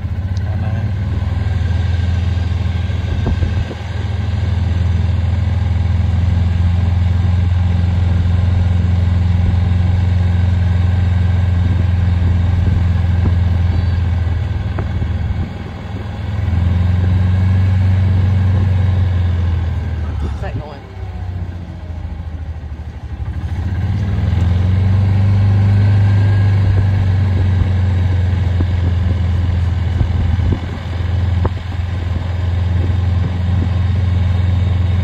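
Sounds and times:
golf cart engine running: 0.0s - 35.0s.

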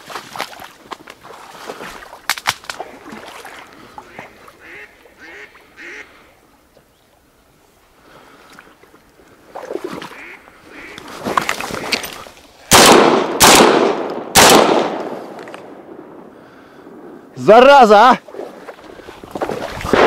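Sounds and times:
splashing in shallow water: 0.0s - 7.3s, 8.0s - 12.9s, 18.1s - 20.0s
rustling through reeds: 0.0s - 12.7s
shotgun shots: 12.7s - 16.0s.

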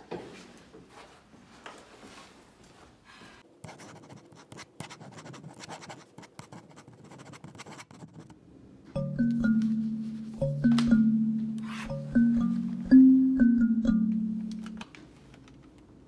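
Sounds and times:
pen scratching on paper: 3.6s - 8.3s
background music with struck notes: 9.0s - 14.8s.

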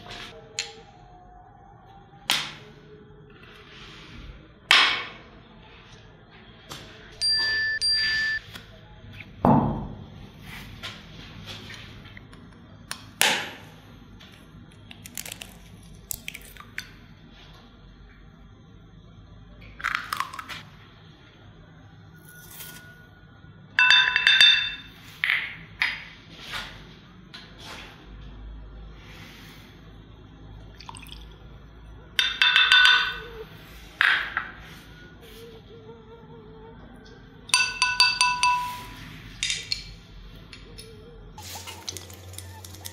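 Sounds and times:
ringing beep tones: 7.2s - 8.5s.

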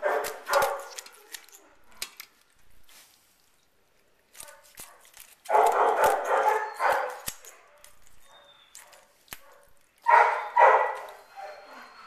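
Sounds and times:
dog barking: 0.0s - 1.3s, 4.4s - 11.7s
kitchen shears snipping: 0.0s - 11.3s.

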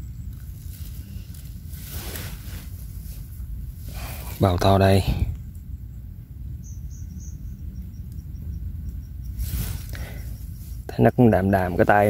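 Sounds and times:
insect chirping: 0.0s - 12.0s
low outdoor rumble: 0.0s - 12.0s
brief rustle: 0.4s - 3.4s, 9.4s - 10.8s.

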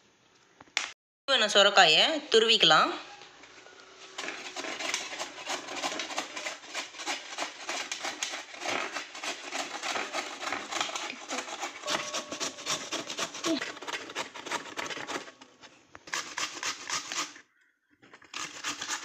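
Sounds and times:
gourd grated on metal grater: 4.2s - 15.4s.

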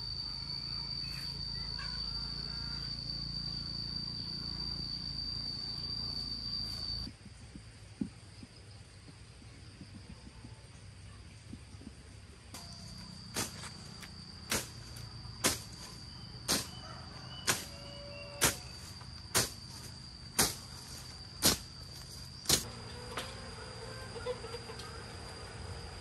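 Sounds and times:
high-pitched insect drone: 0.0s - 7.1s, 12.6s - 26.0s.

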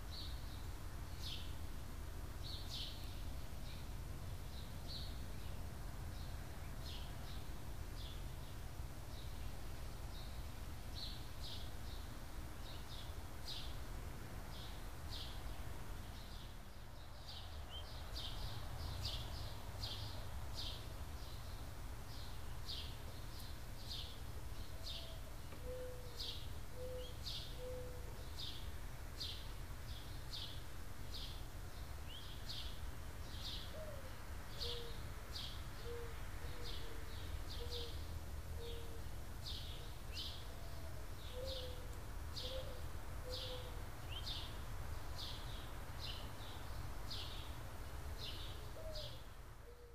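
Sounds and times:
dove cooing: 24.7s - 28.2s, 33.7s - 35.0s, 35.8s - 38.0s, 38.6s - 39.1s, 40.5s - 43.9s, 48.6s - 49.9s.

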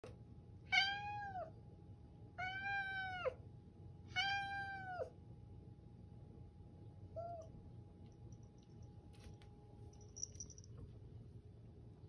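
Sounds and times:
cat meowing hoarsely: 0.7s - 1.5s, 2.4s - 3.4s, 4.1s - 5.1s.

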